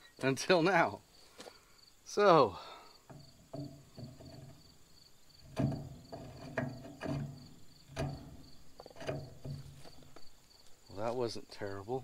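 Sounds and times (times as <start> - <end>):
crickets chirping: 0.0 - 12.0
metal tap clicking and creaking: 3.0 - 4.7, 5.4 - 10.8.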